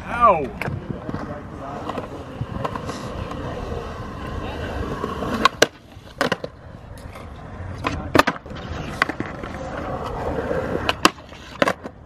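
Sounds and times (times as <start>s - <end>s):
skateboard wheels rolling: 0.0s - 12.0s
skateboard clacks: 0.4s - 12.0s.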